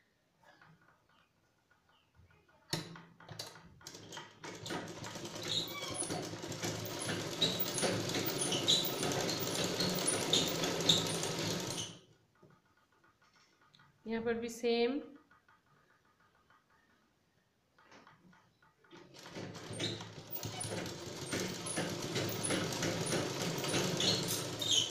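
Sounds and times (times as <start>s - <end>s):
sewing machine clicks: 2.7s - 12.0s, 18.9s - 24.9s
sewing machine stitching: 3.4s - 12.0s, 18.9s - 24.9s.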